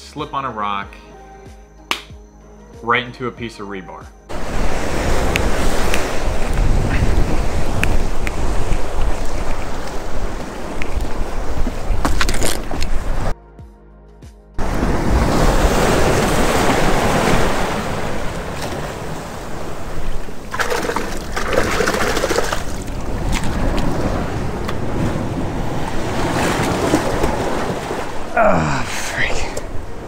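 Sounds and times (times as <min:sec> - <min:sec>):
ocean surf: 0:04.3 - 0:12.0, 0:14.6 - 0:30.0
wind on microphone: 0:04.3 - 0:13.3, 0:14.6 - 0:28.4.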